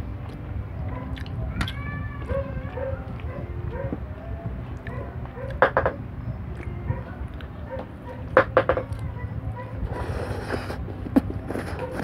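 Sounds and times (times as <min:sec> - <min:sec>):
slurping noodles: 0:10.0 - 0:10.8.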